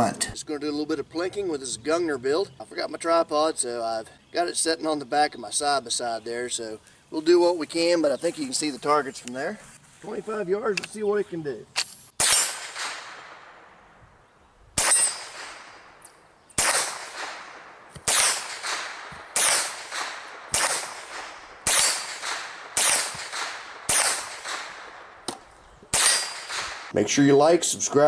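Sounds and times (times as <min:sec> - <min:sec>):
rifle shots cracking: 0:11.8 - 0:13.9, 0:14.7 - 0:26.9.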